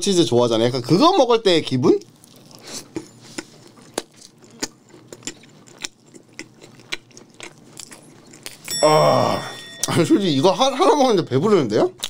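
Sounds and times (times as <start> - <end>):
person chewing: 2.0 - 10.0.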